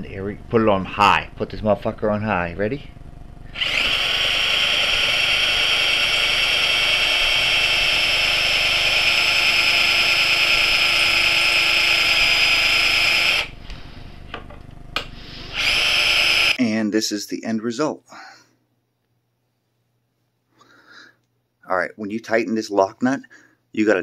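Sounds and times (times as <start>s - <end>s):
cordless drill whining: 3.4s - 13.8s, 15.0s - 16.6s
drill click: 3.5s - 16.6s.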